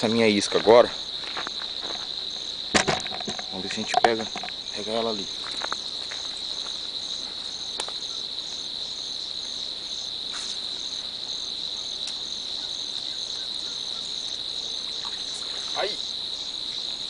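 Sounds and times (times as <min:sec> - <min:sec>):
insect chirping in pulses: 0:00.0 - 0:17.0
insect high-pitched drone: 0:00.9 - 0:17.0
faint ticks: 0:12.0 - 0:12.2.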